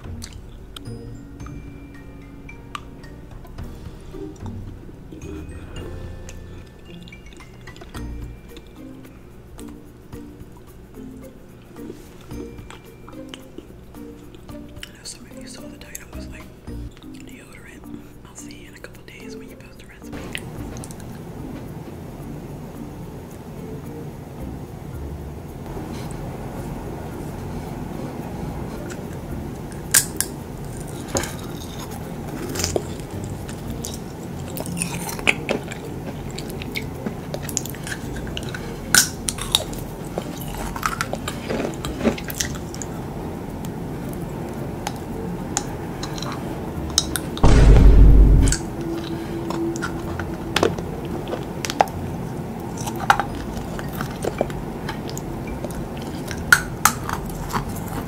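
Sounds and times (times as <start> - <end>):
crunchy biting and chewing: 29.8 - 42.9, 52.6 - 58.0
loud low thump: 47.4 - 48.7.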